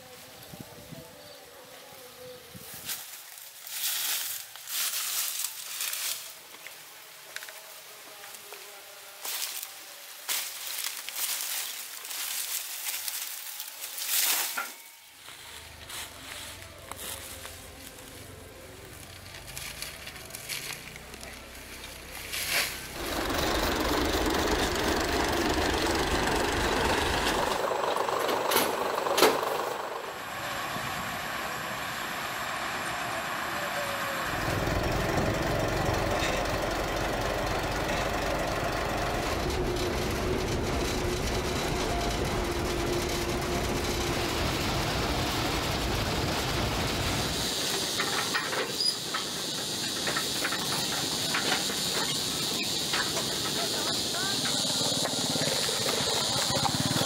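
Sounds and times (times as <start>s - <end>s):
even noise: 10.3s - 57.0s
diesel locomotive engine rumbling: 15.1s - 57.0s.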